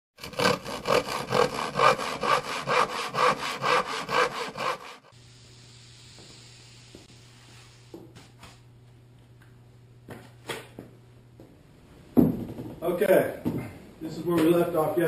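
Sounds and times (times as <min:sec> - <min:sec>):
hand saw cutting wood: 0:00.2 - 0:05.1.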